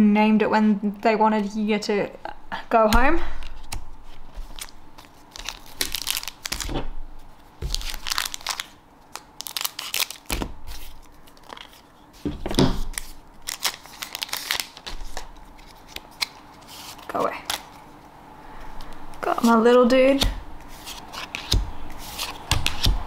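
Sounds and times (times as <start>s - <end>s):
foil wrapper crinkling: 4.4s - 6.7s, 7.6s - 12.0s, 12.8s - 17.9s.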